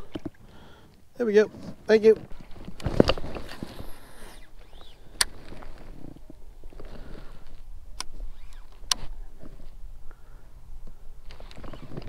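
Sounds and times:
fishing reel handling rumble: 2.2 - 9.7
sharp reel clicks: 8.0 - 9.1.

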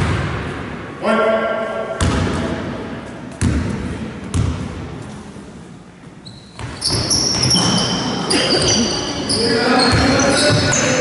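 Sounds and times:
basketball bouncing on wooden floor: 3.4 - 4.6.

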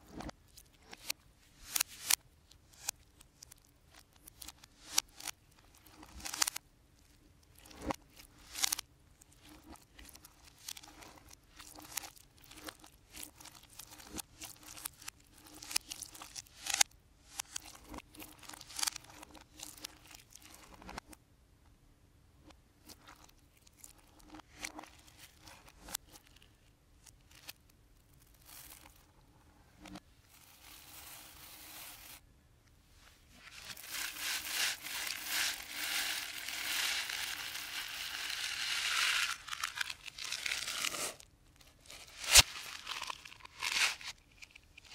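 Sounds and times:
candy pouring onto slime: 33.6 - 41.2, 41.9 - 44.2.

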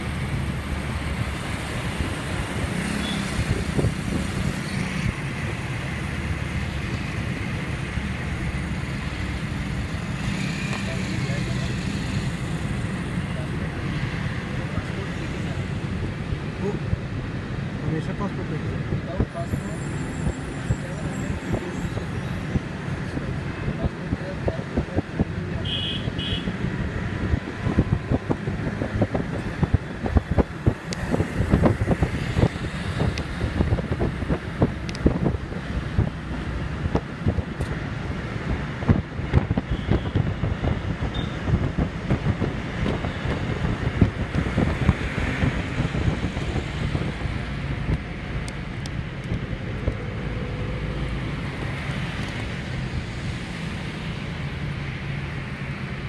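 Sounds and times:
vehicle road noise: 0.0 - 56.0
wind buffeting microphone: 26.6 - 50.2.

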